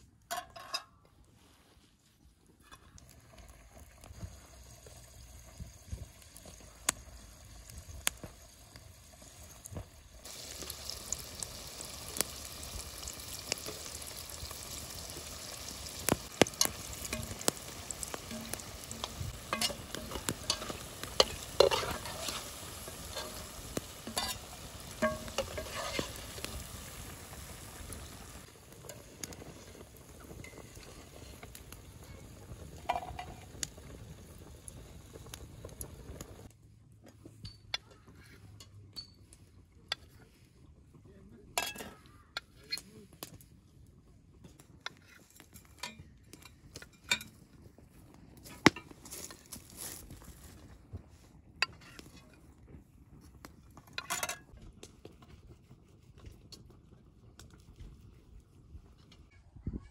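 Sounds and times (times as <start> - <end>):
dough deep-frying in oil: 0.0 - 59.9
metal spatula scraping pot: 0.3 - 1.2, 13.5 - 27.0
spatula clinking on metal plate: 18.3 - 22.4, 24.1 - 24.4, 25.0 - 26.1.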